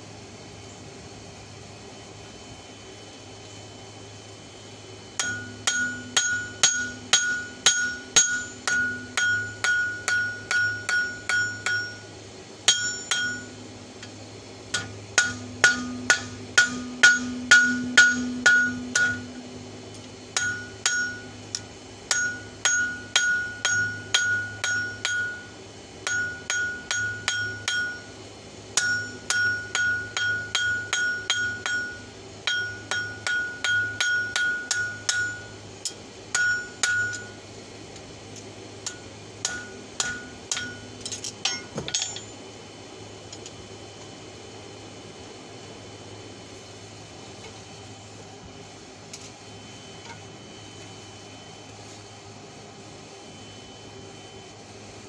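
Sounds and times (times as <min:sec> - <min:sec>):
hammer striking steel on anvil: 0:05.2 - 0:13.6, 0:14.7 - 0:19.5, 0:20.3 - 0:28.2, 0:28.8 - 0:37.4, 0:38.8 - 0:42.4.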